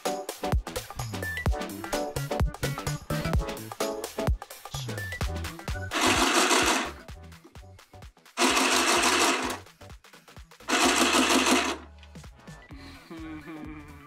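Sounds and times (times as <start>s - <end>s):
handheld sewing machine stitching: 5.9s - 7.0s, 8.4s - 9.7s, 10.7s - 11.9s.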